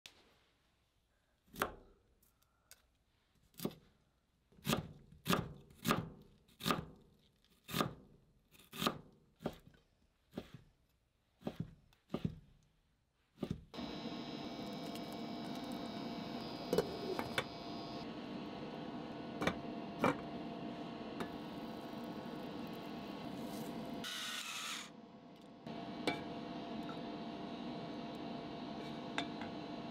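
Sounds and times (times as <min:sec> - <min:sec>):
knife chopping on cutting board: 0:08.7 - 0:09.7, 0:11.4 - 0:12.4.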